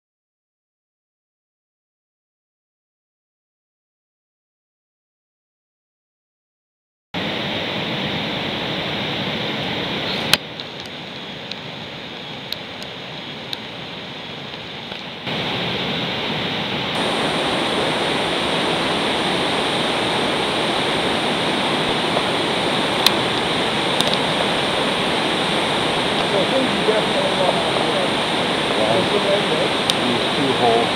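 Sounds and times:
whitewater roaring: 7.2 - 30.9.

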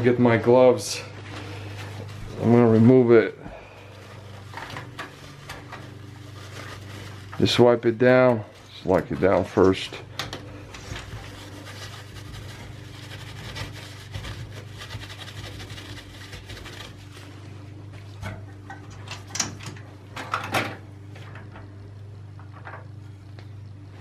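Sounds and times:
steady low hum: 0.0 - 24.0
paper napkin rubbing: 1.0 - 9.1, 10.8 - 17.8.

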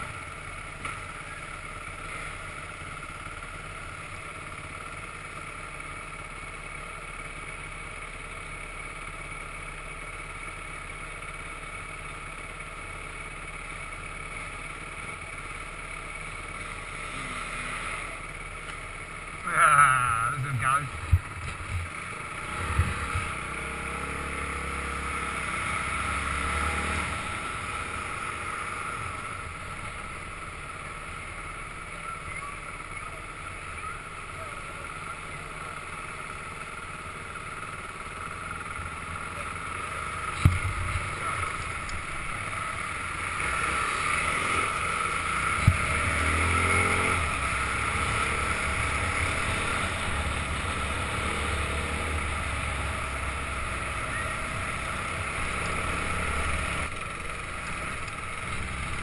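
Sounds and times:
motorcycle engines running: 0.0 - 59.0
low rumbling: 18.8 - 26.4, 39.8 - 59.0.

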